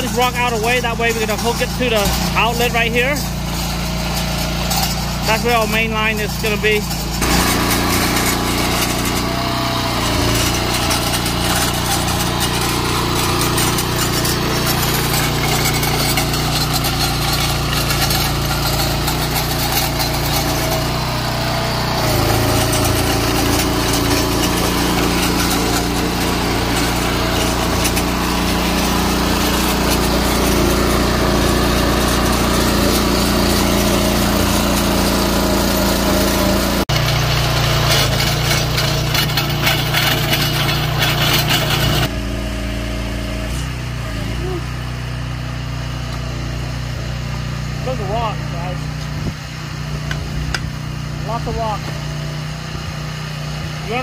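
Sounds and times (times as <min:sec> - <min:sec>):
digging chain cutting rock: 0:00.0 - 0:42.2
trencher engine running: 0:00.0 - 0:54.0.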